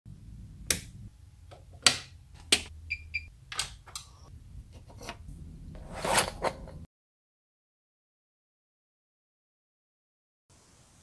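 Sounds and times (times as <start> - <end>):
low hum: 0.1 - 1.6, 2.2 - 6.9
toggle switches clicking: 0.7 - 0.9.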